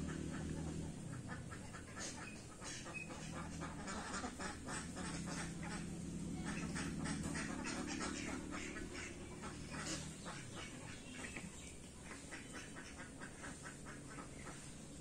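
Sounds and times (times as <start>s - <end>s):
ducks quacking: 0.0s - 15.0s
low steady hum: 0.0s - 15.0s.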